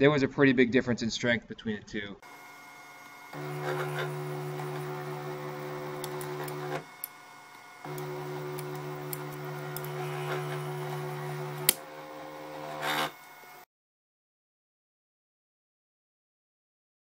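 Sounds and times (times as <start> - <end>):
small motor humming: 2.3 - 13.6.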